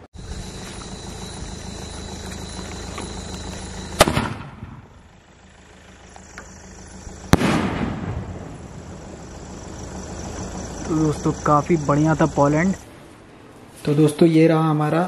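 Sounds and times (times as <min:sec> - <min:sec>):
firework shell bursting: 0:04.0 - 0:04.9, 0:07.3 - 0:08.8
firework shell launch bang: 0:04.0 - 0:04.9, 0:07.3 - 0:08.6.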